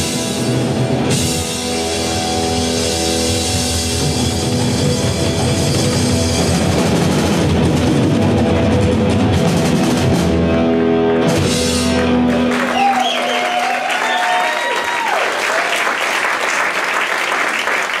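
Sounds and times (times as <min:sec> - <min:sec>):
rock band playing final chord: 0:00.0 - 0:13.1
audience applauding and cheering: 0:11.8 - 0:18.0
shouted whoops: 0:12.6 - 0:16.0.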